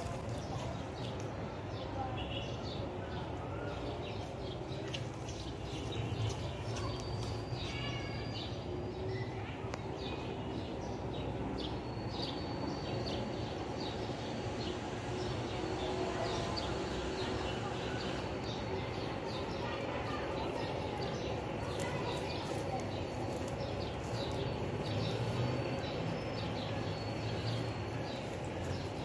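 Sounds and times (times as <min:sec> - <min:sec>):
birds chirping: 0:00.0 - 0:29.0.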